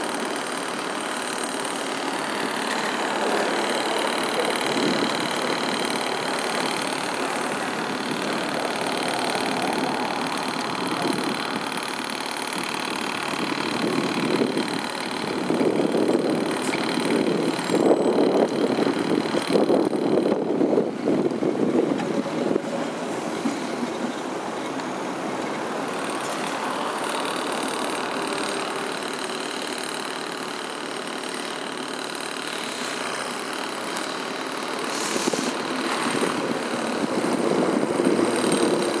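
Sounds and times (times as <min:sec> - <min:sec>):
tram wheels rumbling on rails: 0:02.2 - 0:28.9, 0:34.9 - 0:39.0.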